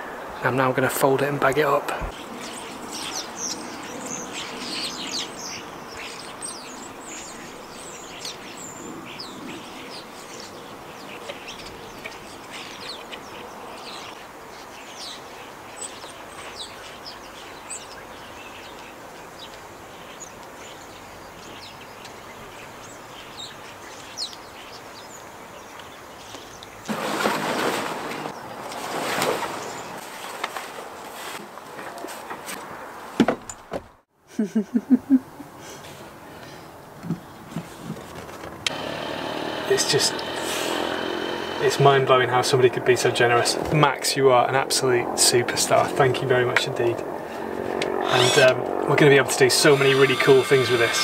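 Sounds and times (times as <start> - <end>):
small birds chirping: 2.0 - 26.9.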